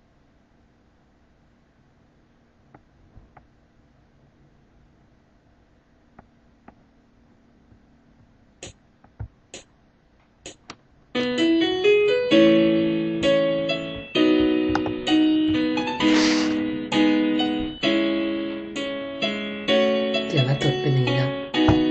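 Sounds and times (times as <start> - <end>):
electric keyboard chords: 10.4 - 21.9.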